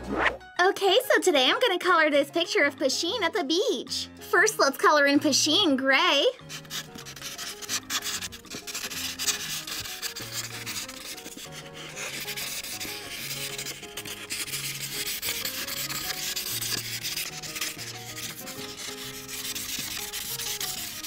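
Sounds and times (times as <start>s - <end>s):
felt marker scratching on paper: 6.3s - 21.0s.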